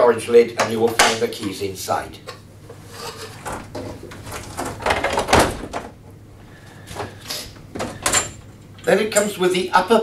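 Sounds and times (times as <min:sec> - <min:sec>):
plastic knocks and rattles: 0:03.4 - 0:06.0.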